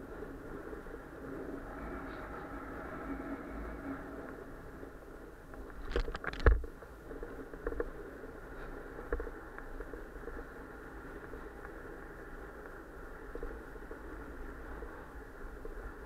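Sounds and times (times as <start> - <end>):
bike tyres rolling on pavement: 0.0 - 2.6, 3.4 - 16.0
bike rattles and knocks: 5.7 - 8.0.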